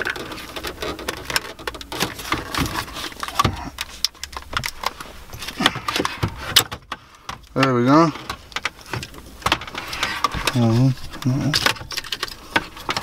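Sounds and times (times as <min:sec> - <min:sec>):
metal case clicking and rattling: 0:00.0 - 0:13.0.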